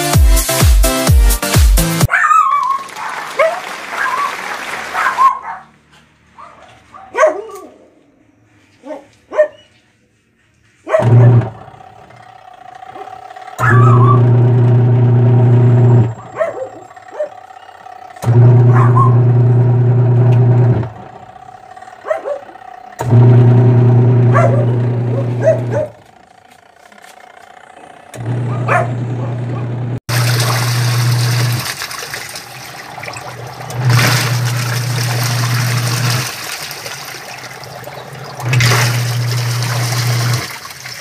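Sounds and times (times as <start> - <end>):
water rushing into tub: 2.6 - 5.2, 30.1 - 41.0
washing machine motor humming: 10.9 - 41.0.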